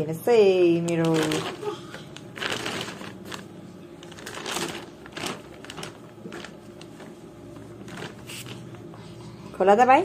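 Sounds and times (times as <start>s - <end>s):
plastic bag rustling: 0.8s - 8.9s.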